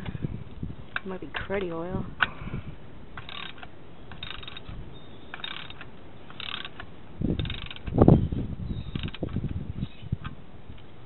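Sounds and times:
socket ratchet clicking: 3.2s - 4.7s, 5.3s - 8.0s.

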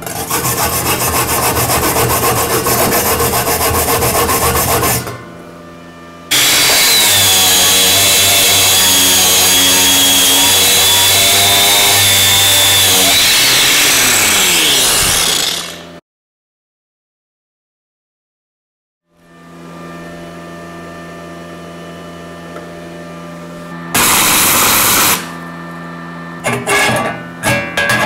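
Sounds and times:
angle grinder whining: 6.3s - 16.0s, 23.9s - 25.4s.

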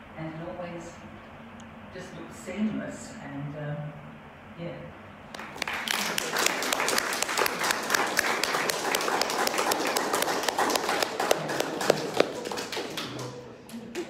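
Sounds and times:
loud single claps: 5.3s - 13.3s
audience applauding: 5.4s - 14.0s.

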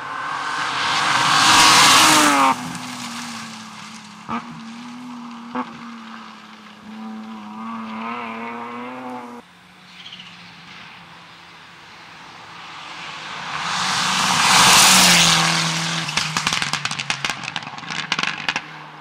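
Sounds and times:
distant rally engine revving: 0.0s - 3.5s, 6.8s - 9.4s
rally car passing: 0.0s - 19.0s.

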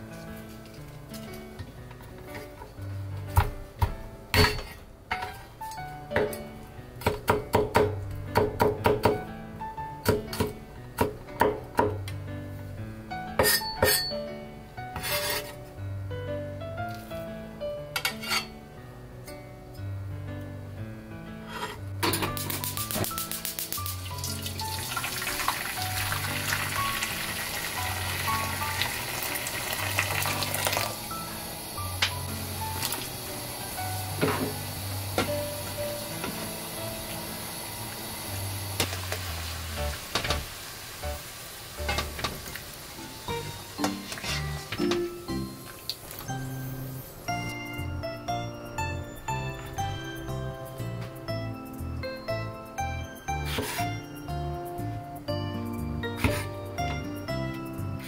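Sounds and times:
background music: 0.0s - 58.0s
water pouring into a frying pan: 22.7s - 44.7s.

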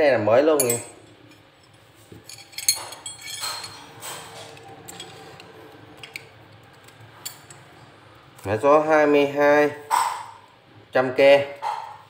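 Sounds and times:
metal drill bits clinking: 0.6s - 5.4s.

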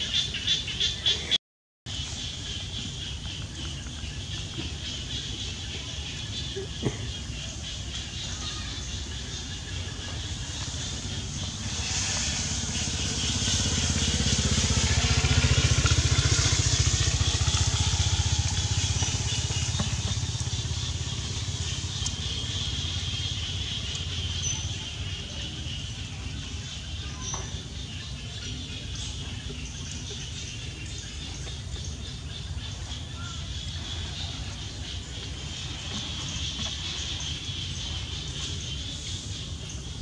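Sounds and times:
outdoor background noise: 0.0s - 40.0s
vehicle engine rumble passing: 1.9s - 40.0s.

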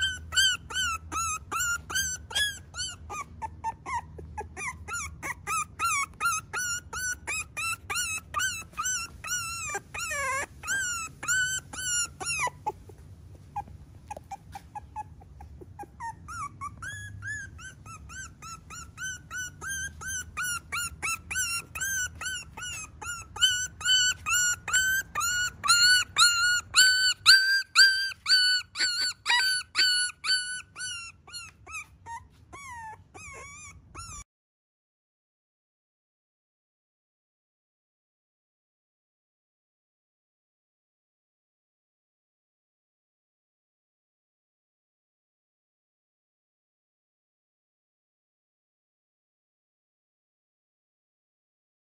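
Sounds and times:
puppy whimpering: 0.0s - 34.3s.

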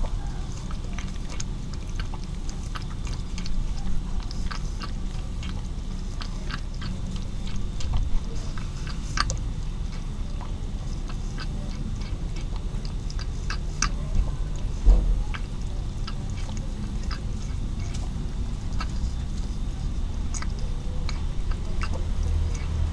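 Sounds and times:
cat lapping milk: 0.0s - 22.9s
low background rumble: 0.0s - 22.9s
dull low thump: 14.8s - 15.3s.

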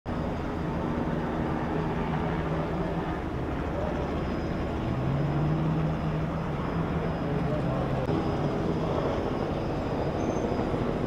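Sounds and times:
engine drone: 0.1s - 11.0s.

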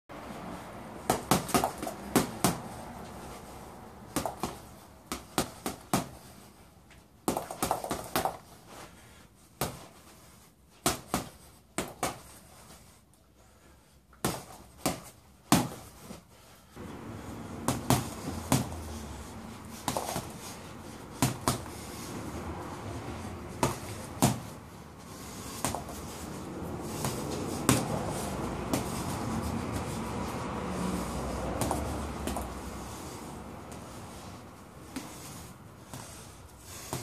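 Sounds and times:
steady background noise: 0.1s - 37.0s
boxing gloves smacking a ball: 1.0s - 3.4s, 4.1s - 6.5s, 7.2s - 8.6s, 9.6s - 10.2s, 10.8s - 12.7s, 14.1s - 16.2s, 16.8s - 22.8s, 23.5s - 30.1s, 31.6s - 33.1s, 34.8s - 37.0s.

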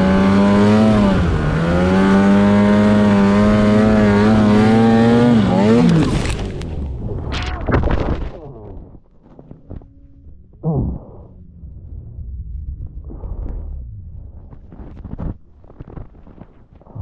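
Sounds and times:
snowmobile engine running: 0.0s - 7.0s.

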